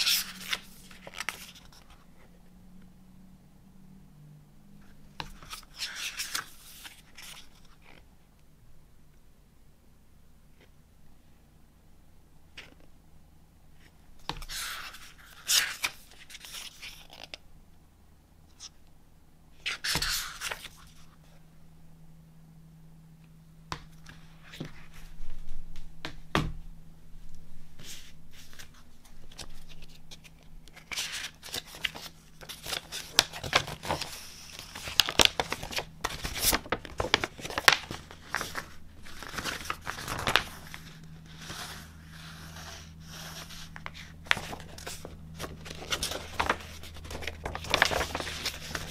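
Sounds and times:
book pages rustling: 0:00.0 - 0:02.3, 0:04.8 - 0:08.0, 0:13.8 - 0:17.4, 0:19.6 - 0:21.3, 0:27.7 - 0:48.9
paper poster crinkling: 0:27.8 - 0:48.9.

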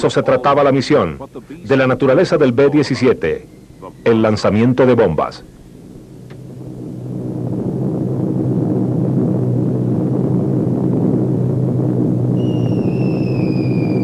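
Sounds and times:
propeller aircraft drone: 0:05.4 - 0:14.0
whistle of falling bombs: 0:12.3 - 0:14.0.

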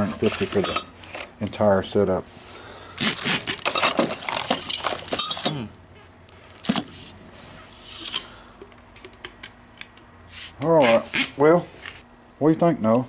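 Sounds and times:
metal drill bits clinking: 0:00.2 - 0:01.2, 0:03.6 - 0:05.7.

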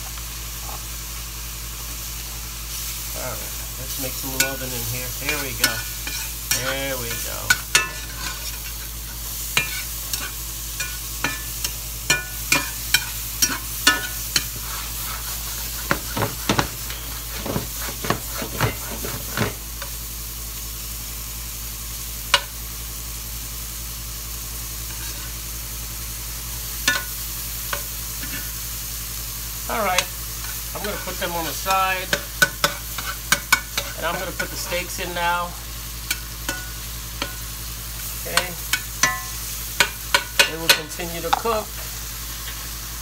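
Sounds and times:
mushrooms sizzling in butter: 0:00.0 - 0:43.0
spatula scraping against pan: 0:04.1 - 0:19.9, 0:30.0 - 0:35.0.

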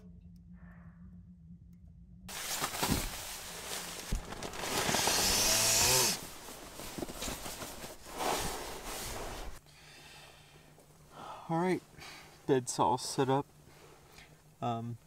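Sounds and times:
nylon fabric rustling: 0:02.3 - 0:09.6.

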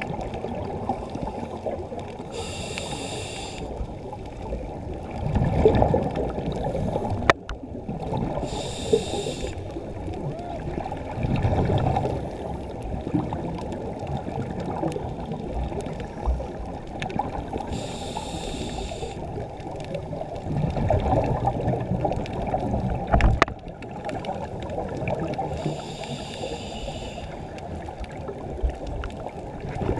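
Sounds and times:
underwater bubbles gurgling: 0:00.0 - 0:29.9
regulator hissing inhales: 0:02.3 - 0:03.8, 0:08.4 - 0:09.7, 0:17.7 - 0:19.2, 0:25.5 - 0:27.5.

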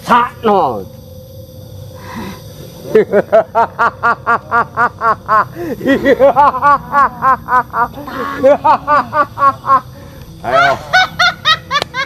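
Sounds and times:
high-pitched cackling laugh: 0:02.9 - 0:12.0.

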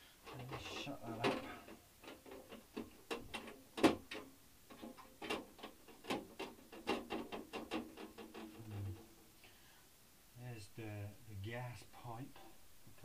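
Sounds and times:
plastic casing clicks and knocks: 0:01.2 - 0:08.5.

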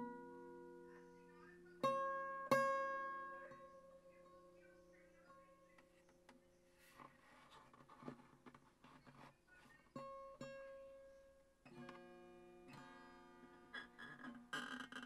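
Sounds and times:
plucked guitar notes: 0:00.0 - 0:04.6.

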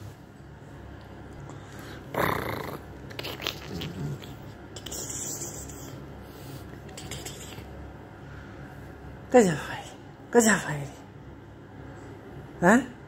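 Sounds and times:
dog snorting: 0:01.8 - 0:07.7
dog grunting: 0:01.9 - 0:05.6.

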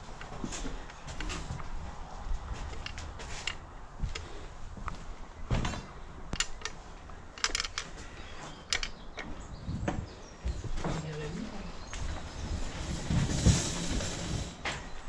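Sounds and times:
handling clicks and knocks: 0:02.6 - 0:04.3, 0:05.5 - 0:10.0.

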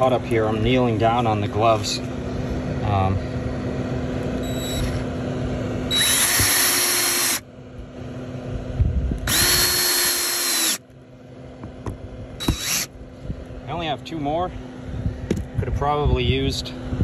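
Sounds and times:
power drill whining: 0:04.4 - 0:05.1, 0:05.9 - 0:07.4, 0:09.2 - 0:10.8, 0:12.4 - 0:12.9.

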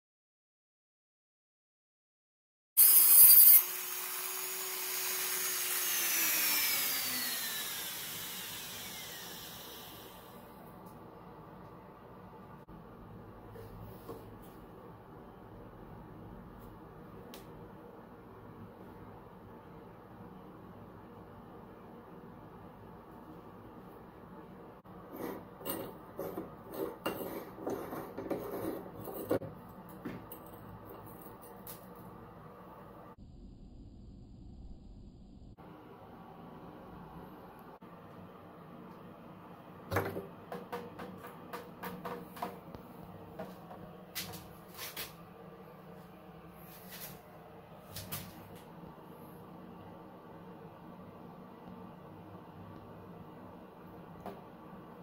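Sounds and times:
rotary tool grinding metal: 0:02.8 - 0:10.3
motor whining down: 0:02.8 - 0:10.5
metal scraping on threads: 0:25.1 - 0:29.4.

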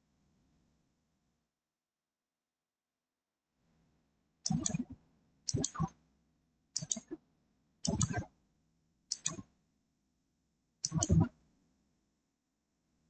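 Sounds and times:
computer mouse clicking: 0:04.5 - 0:04.9, 0:05.5 - 0:05.8, 0:06.8 - 0:07.2, 0:07.9 - 0:08.2, 0:09.1 - 0:09.4, 0:10.8 - 0:11.1.

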